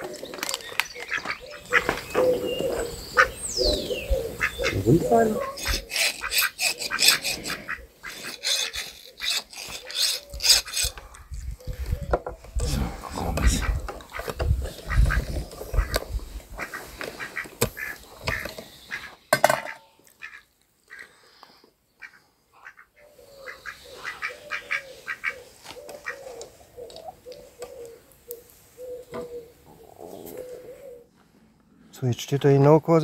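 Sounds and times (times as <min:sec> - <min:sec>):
bird calling low notes: 0:00.0 - 0:19.2.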